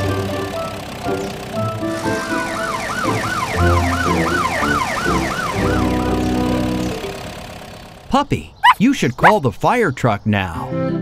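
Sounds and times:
background music: 0:00.0 - 0:07.1
cartoon police siren yelping: 0:02.2 - 0:06.8, 0:08.6 - 0:09.4.

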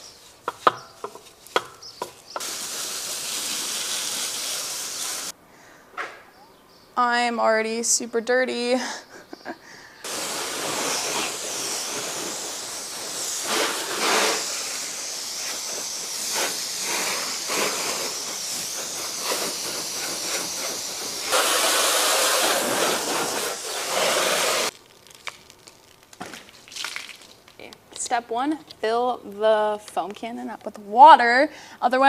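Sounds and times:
hose water spraying on car: 0:02.1 - 0:05.4, 0:10.1 - 0:24.8.

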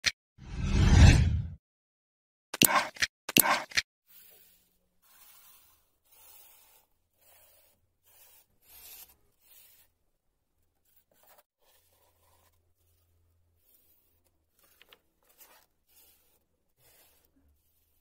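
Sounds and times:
whoosh sound effect: 0:00.4 - 0:01.6.

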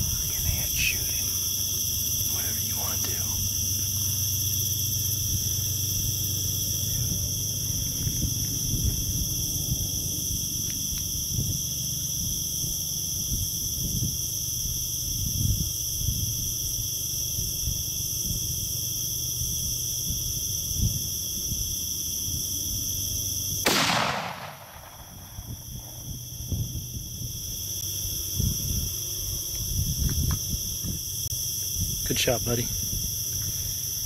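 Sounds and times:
low thumps and rumbles: 0:00.0 - 0:14.2
crickets chorusing: 0:00.0 - 0:34.0.

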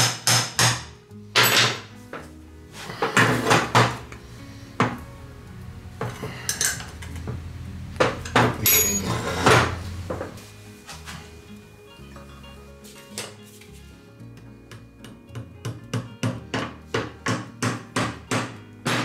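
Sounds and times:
metal parts clinking and knocking: 0:08.6 - 0:09.6.

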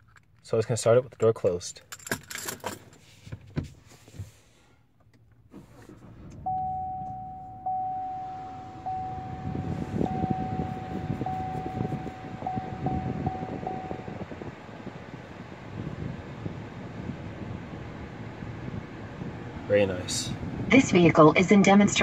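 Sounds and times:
car engine idling: 0:04.8 - 0:22.0
dashboard warning chime: 0:06.4 - 0:15.6.

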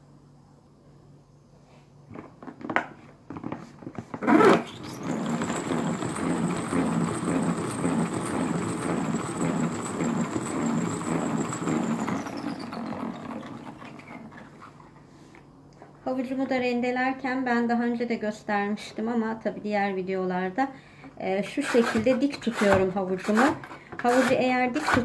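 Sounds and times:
salad spinner whirring rattle: 0:04.2 - 0:14.8
salad spinner clunk: 0:04.5 - 0:14.5.

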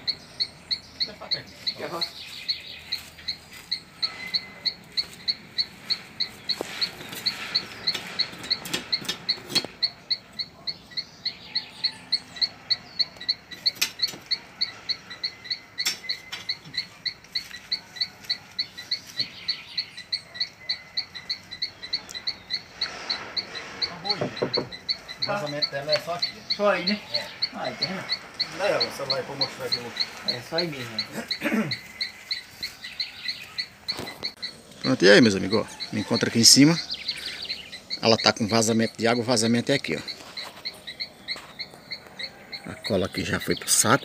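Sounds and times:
insect chirping: 0:00.0 - 0:44.0
knocks and taps: 0:24.2 - 0:24.8.

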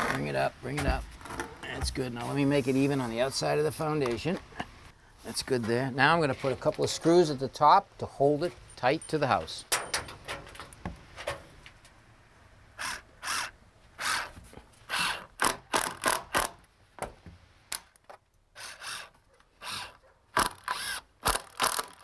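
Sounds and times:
cordless drill driving screws: 0:12.8 - 0:16.5, 0:18.6 - 0:22.0.

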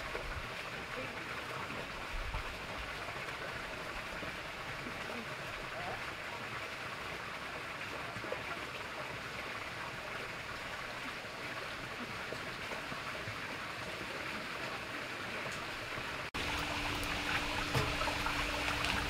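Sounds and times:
water trickling over pebbles: 0:00.0 - 0:19.0.

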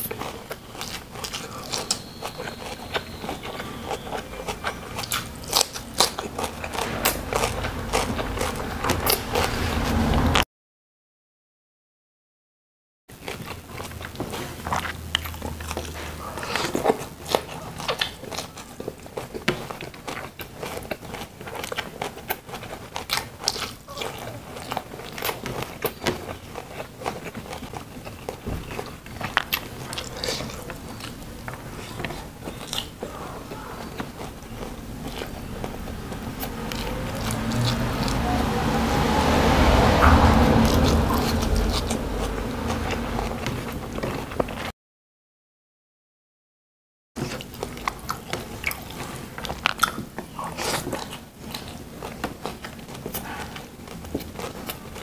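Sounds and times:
chewing and crunchy bites: 0:00.0 - 0:10.4, 0:13.1 - 0:44.7, 0:47.2 - 0:55.0
rising hum: 0:06.8 - 0:10.4, 0:34.3 - 0:44.5.

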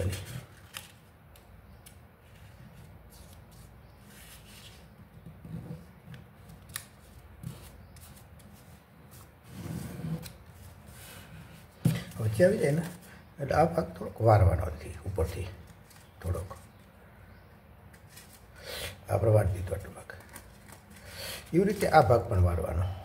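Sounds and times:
paper rustling as folded: 0:00.0 - 0:04.9, 0:17.9 - 0:18.5, 0:19.8 - 0:22.4.

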